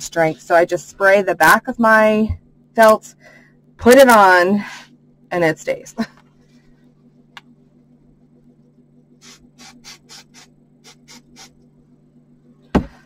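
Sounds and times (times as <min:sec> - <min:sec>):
aerosol spray bursts: 0:09.2 - 0:11.5.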